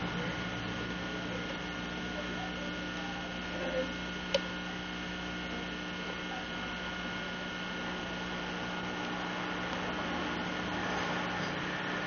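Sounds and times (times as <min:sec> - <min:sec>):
electrical hum: 0:00.0 - 0:12.0.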